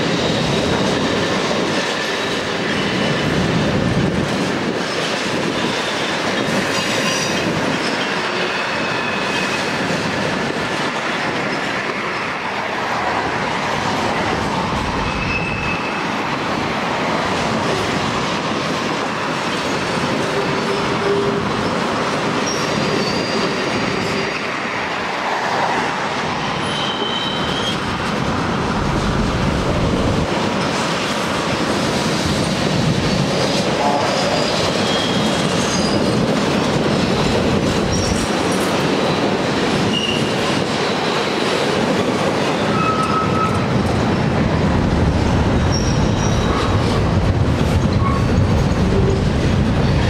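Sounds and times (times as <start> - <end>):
train wheels rumbling on rails: 0.0 - 50.0
high-pitched wheel squeals: 15.1 - 16.0, 22.4 - 24.5, 26.6 - 27.8, 34.0 - 36.1, 42.7 - 43.6, 45.7 - 46.6.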